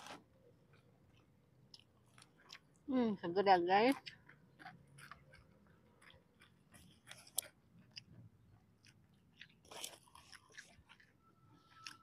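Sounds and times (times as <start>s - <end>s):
chewing crunchy snacks: 3.9s - 12.0s.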